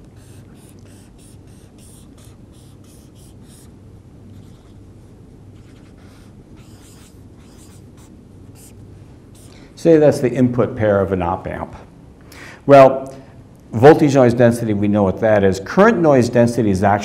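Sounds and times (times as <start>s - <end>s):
marker pen scratching on paper: 0.0s - 3.7s, 4.3s - 4.8s, 5.6s - 9.6s
steady low hum: 0.0s - 17.0s.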